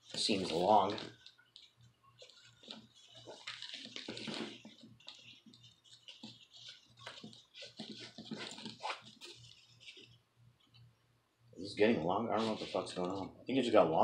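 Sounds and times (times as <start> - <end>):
small clicks and rustles: 0.0 - 10.9.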